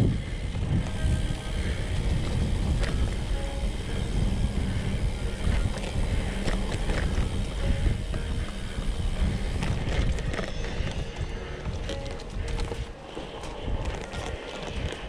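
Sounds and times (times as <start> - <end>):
bike tyres rumbling on dirt: 0.0 - 15.0
wind on microphone: 0.0 - 15.0
bike knocks and rattles: 0.1 - 15.0.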